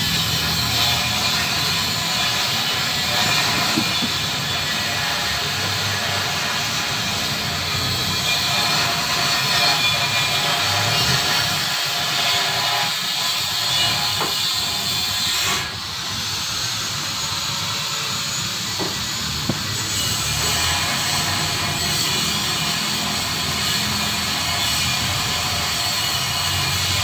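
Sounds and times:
loud steady hiss: 0.0s - 27.0s.

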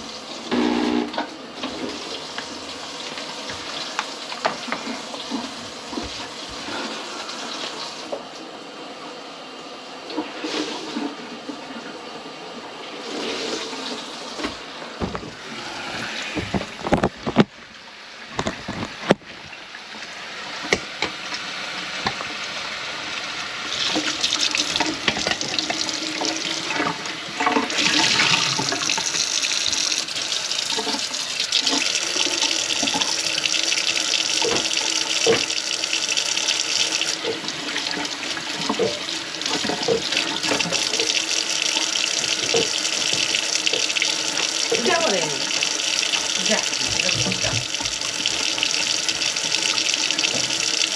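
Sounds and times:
kitchen faucet running into sink: 20.0s - 50.9s.

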